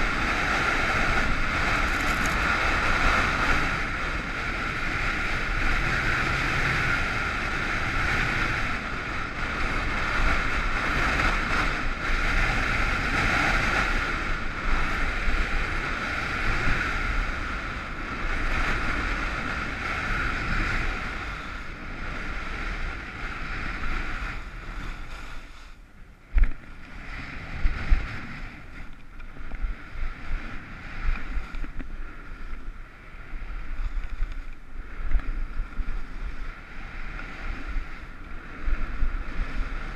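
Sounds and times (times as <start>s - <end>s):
skis scraping over snow: 0.0s - 19.8s
wind rushing over microphone: 0.0s - 39.9s.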